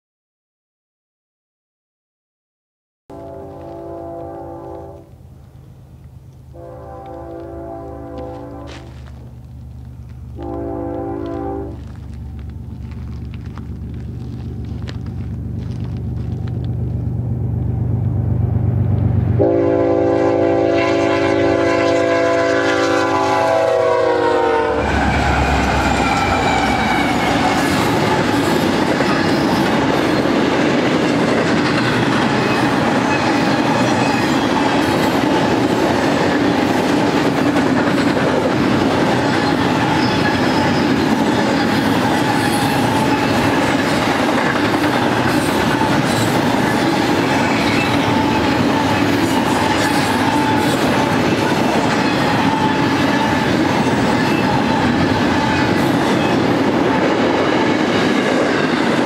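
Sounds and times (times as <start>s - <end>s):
train air horn blast: 3.1s - 5.1s, 6.5s - 9.0s, 10.3s - 11.8s, 19.4s - 28.3s
diesel locomotive engine rumbling: 3.1s - 59.0s
train wheels clattering on rails: 24.9s - 59.0s.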